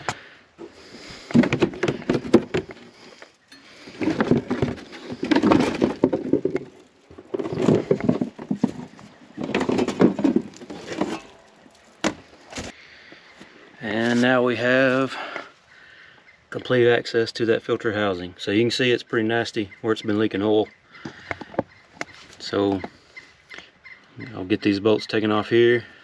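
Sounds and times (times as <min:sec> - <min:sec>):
plastic liner scraping and crackling: 0:01.0 - 0:03.2, 0:03.8 - 0:12.8.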